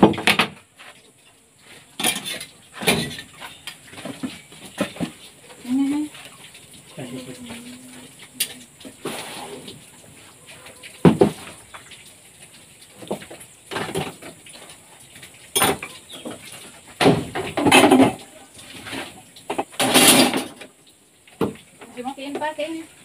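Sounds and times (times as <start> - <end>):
metal tools clanking into bucket: 2.0 - 5.2, 15.5 - 16.4, 17.3 - 20.7.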